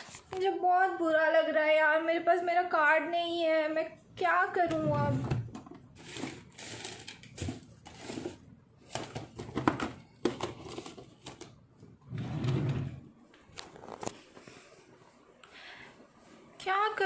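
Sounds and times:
rummaging through small things: 5.5 - 11.6.

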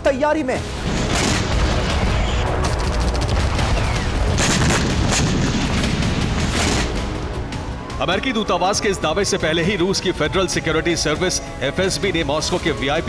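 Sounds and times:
heavy rumble of explosions: 0.7 - 7.9
gunfire cracks: 0.8 - 7.2.

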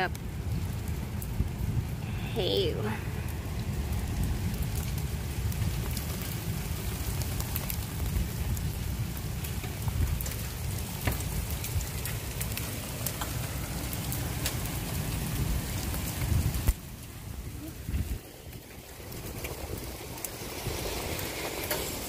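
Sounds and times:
heavy rain on pavement: 0.0 - 22.0
raindrops ticking near microphone: 0.0 - 22.0.

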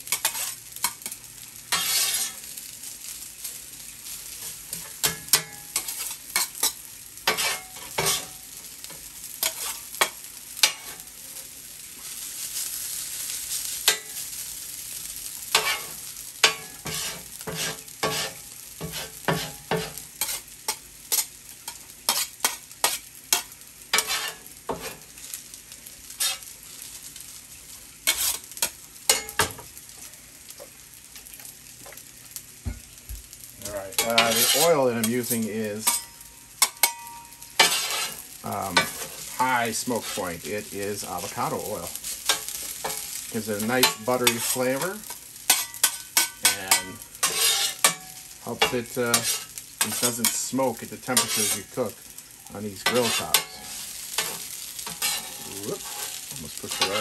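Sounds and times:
rice sizzling on griddle: 0.0 - 57.0
metal spatula clacking and scraping: 0.1 - 2.4, 4.7 - 8.4, 9.4 - 11.0, 15.5 - 25.0, 26.2 - 26.4, 28.1 - 29.5, 34.0 - 39.3, 42.2 - 43.0, 43.6 - 51.8, 52.8 - 57.0.

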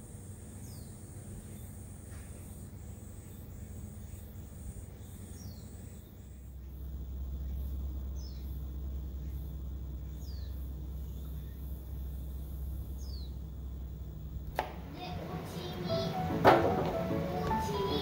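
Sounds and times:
bird chirps: 7.4 - 13.4
background music: 15.2 - 18.0.

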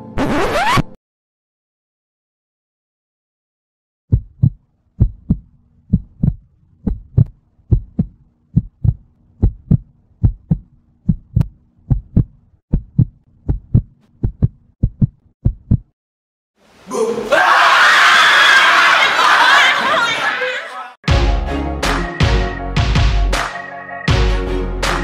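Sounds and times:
heartbeat thumps: 4.1 - 16.0.

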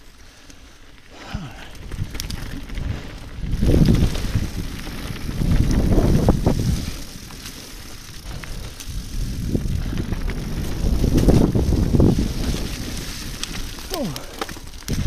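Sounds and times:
bike tyres rattling on rough ground: 0.0 - 15.0
wind buffeting microphone: 1.7 - 7.4, 8.0 - 14.2.

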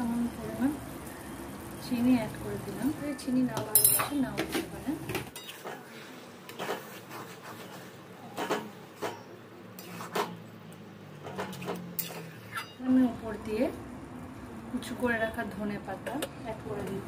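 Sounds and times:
metal spatula scraping metal pan: 11.3 - 12.8.

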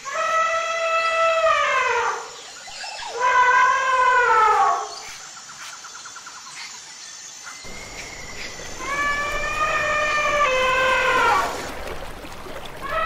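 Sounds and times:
elephant trumpeting: 7.7 - 11.7
river water flowing: 7.7 - 13.0.

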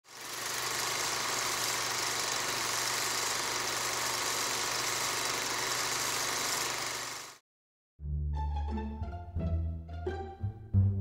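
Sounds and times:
machine running with hiss and hum: 0.1 - 7.4.

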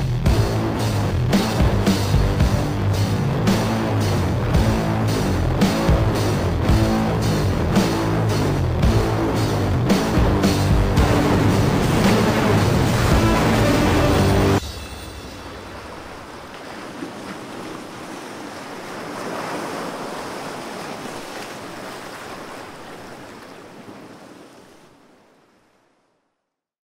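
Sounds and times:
steady rushing noise: 0.0 - 21.3.

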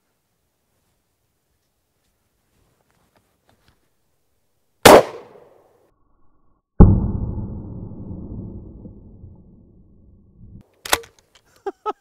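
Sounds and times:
dull shotgun blast with rolling echo: 4.8 - 5.4, 6.8 - 9.8
shotgun shot: 4.9 - 5.5.

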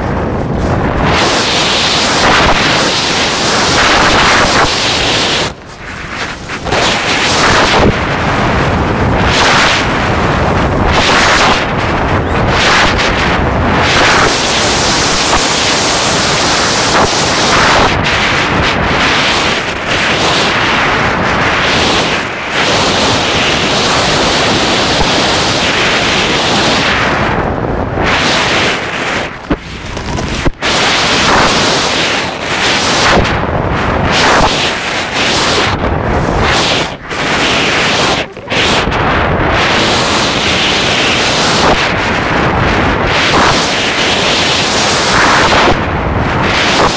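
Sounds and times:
wind buffeting microphone: 0.0 - 46.9.

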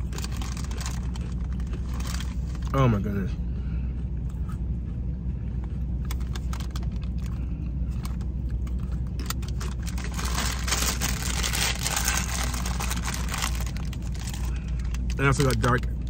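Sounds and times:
plastic snack bag crinkling: 0.0 - 2.7, 8.0 - 15.9
low steady hum: 0.0 - 16.0.

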